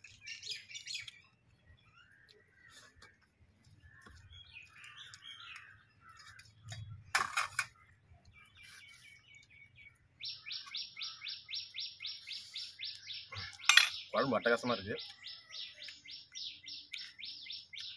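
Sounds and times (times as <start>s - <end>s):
birds chirping: 0.0s - 17.9s
rapid sharp bird calls: 7.7s - 17.9s.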